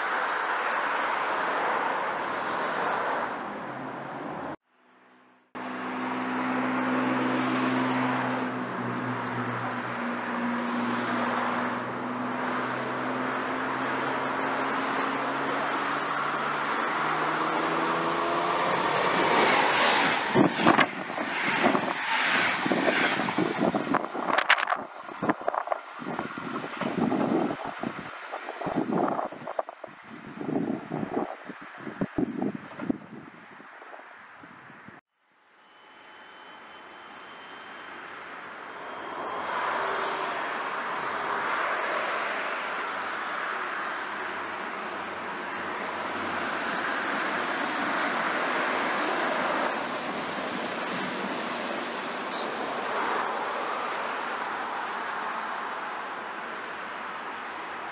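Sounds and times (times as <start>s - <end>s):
electric train passing: 5.6s - 28.8s, 35.4s - 56.9s
train cars thumping: 19.0s - 27.0s, 46.6s - 53.2s
train motor whine: 35.5s - 38.1s.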